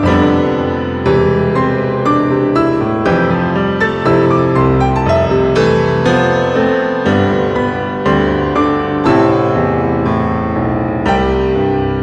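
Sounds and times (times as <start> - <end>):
slow piano melody: 0.0 - 12.0.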